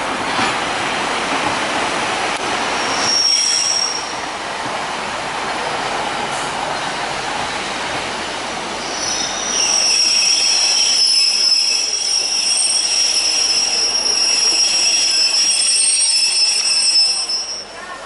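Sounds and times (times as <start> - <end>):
train rumble: 0.0 - 18.0
train wheels squealing: 2.8 - 4.2, 8.8 - 17.9.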